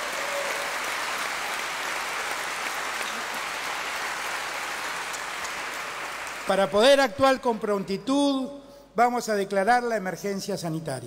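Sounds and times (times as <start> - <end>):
large audience applause: 0.0 - 7.0.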